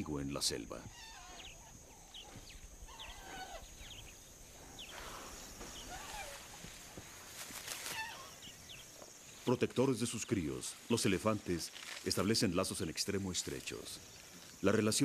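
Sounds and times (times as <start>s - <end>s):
bird chirps: 0.9s - 6.7s
brief rustles: 4.9s - 8.3s.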